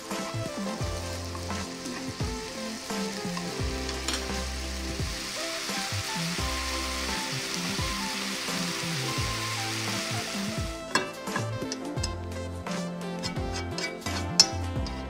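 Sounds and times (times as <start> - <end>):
beef sizzling in a pan: 0.0 - 15.0.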